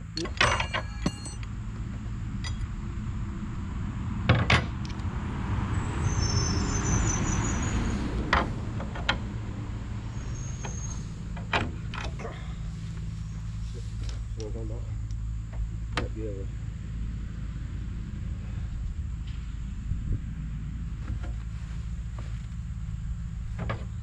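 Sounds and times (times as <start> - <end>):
engine running at low speed: 0.0 - 24.0
metal clinks of hose fittings: 0.1 - 1.5.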